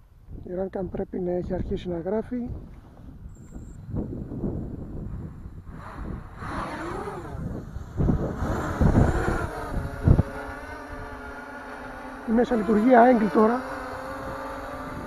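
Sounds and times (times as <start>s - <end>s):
low rumbling on microphone: 0.0s - 15.0s
drone motors whining: 3.3s - 15.0s.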